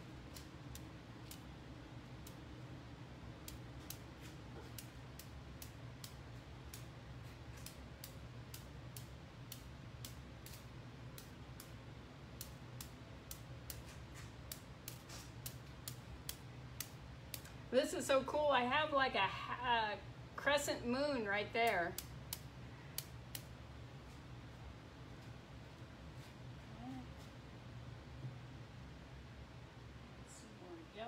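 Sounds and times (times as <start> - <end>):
brush tapping: 12.4 - 17.5.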